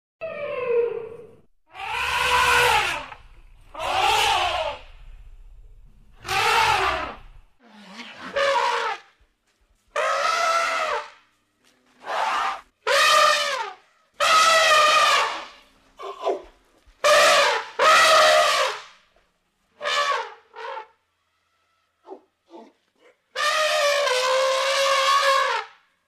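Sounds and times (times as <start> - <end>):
elephant trumpeting: 0.2 - 9.1, 10.0 - 11.1, 12.0 - 16.2, 17.0 - 18.8, 19.8 - 21.0, 23.3 - 25.7.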